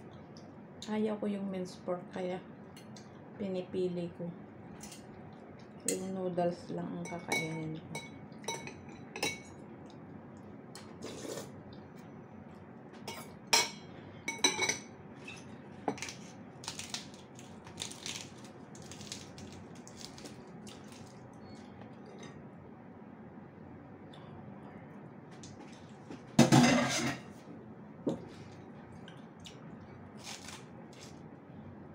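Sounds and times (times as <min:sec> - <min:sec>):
cutlery clinking against bowl: 0:07.1 - 0:09.6, 0:13.1 - 0:16.0.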